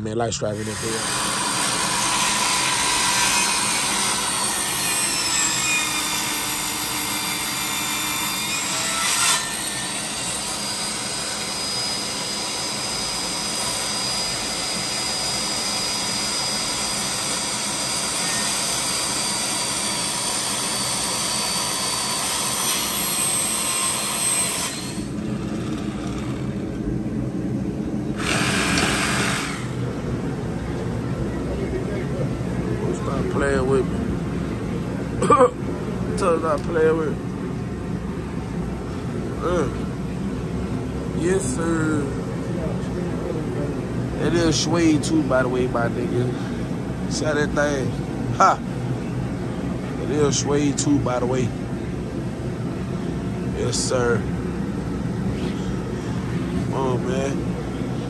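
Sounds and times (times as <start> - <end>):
circular saw cutting board: 0.6 - 26.6, 28.2 - 29.8.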